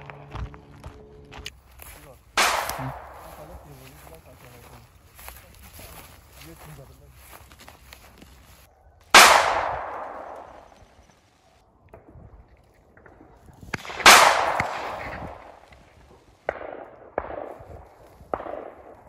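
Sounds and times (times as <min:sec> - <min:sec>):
shotgun shots echoing: 0:02.0 - 0:04.8, 0:09.1 - 0:10.9, 0:13.0 - 0:19.0.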